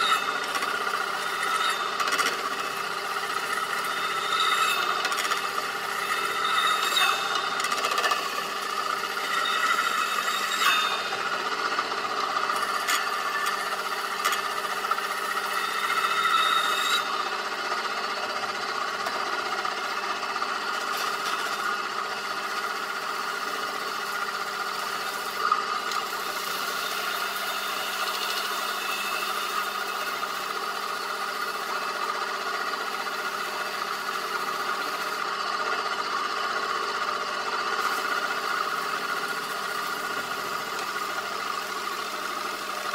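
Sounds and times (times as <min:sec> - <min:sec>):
spinning cymbal ringing scraping drone: 0:00.0 - 0:11.3.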